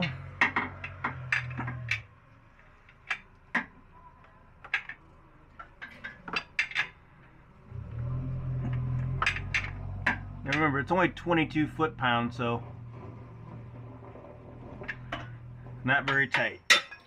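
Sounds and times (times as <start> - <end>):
low hum: 7.0 - 15.9.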